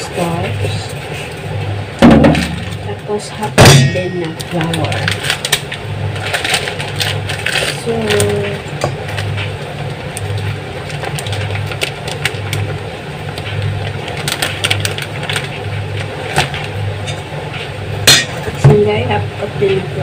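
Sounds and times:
low machine hum: 0:00.0 - 0:20.0
plastic bag rustling: 0:02.1 - 0:17.1.

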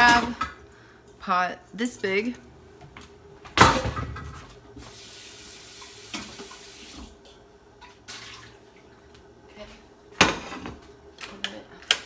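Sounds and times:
tap water running into pot: 0:04.8 - 0:07.2.

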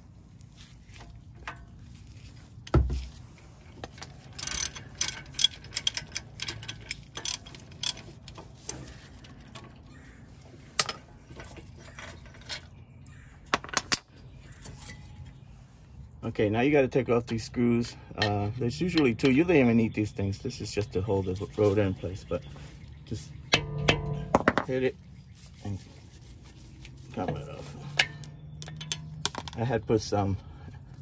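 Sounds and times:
ratchet wrench clicking: 0:04.1 - 0:08.4
sharp metal clanks: 0:23.5 - 0:24.8, 0:27.9 - 0:29.6.

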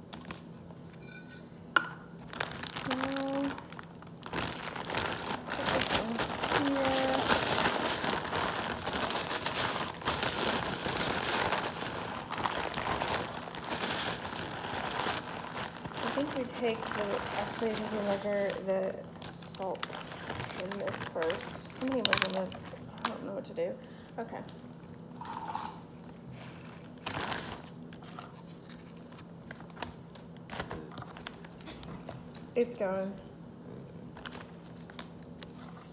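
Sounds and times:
plastic bag crinkling: 0:02.2 - 0:23.3, 0:26.8 - 0:32.6.

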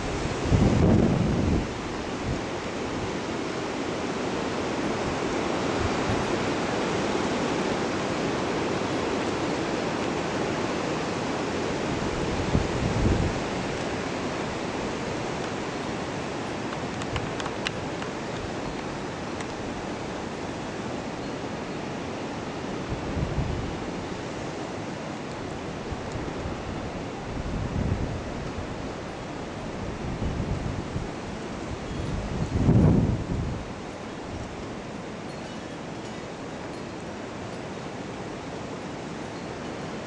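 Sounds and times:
wind buffeting microphone: 0:00.0 - 0:02.6, 0:11.8 - 0:15.4, 0:22.8 - 0:24.3, 0:25.5 - 0:34.8
wind rushing through trees: 0:00.0 - 0:40.0.

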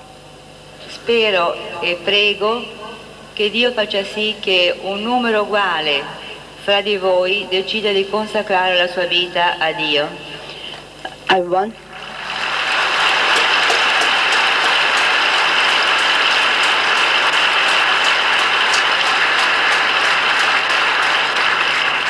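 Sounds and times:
large audience applauding: 0:11.9 - 0:22.0.

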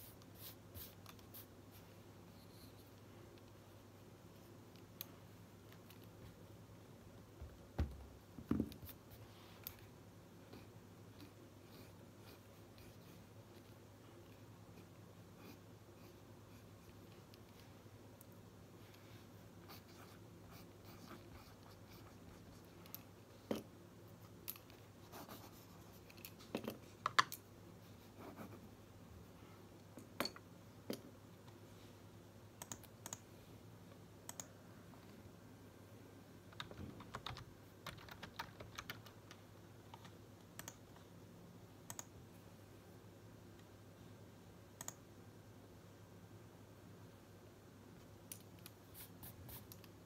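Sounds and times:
faint low hum: 0:00.0 - 0:50.0
computer mouse clicking: 0:32.6 - 0:33.3, 0:34.2 - 0:34.6, 0:36.5 - 0:41.0, 0:41.8 - 0:42.2, 0:44.8 - 0:45.0.

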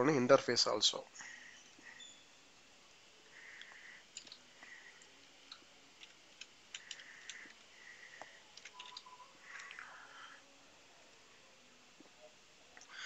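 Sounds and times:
keyboard keys clicking: 0:04.2 - 0:04.4, 0:05.5 - 0:07.6, 0:08.6 - 0:09.8.

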